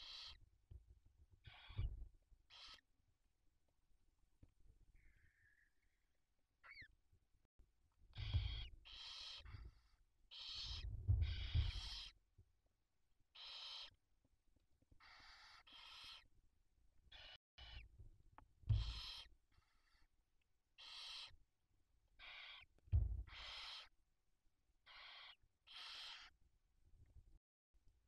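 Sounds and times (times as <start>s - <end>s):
owl chicks hissing: 0.0s - 0.4s, 2.5s - 2.8s, 8.2s - 12.2s, 13.4s - 13.9s, 15.0s - 16.3s, 18.8s - 20.1s, 20.8s - 21.4s, 22.2s - 22.7s, 23.3s - 23.9s, 24.9s - 26.3s
low thumps in nest: 8.2s - 8.8s, 10.7s - 12.1s, 18.7s - 19.0s, 22.9s - 23.5s.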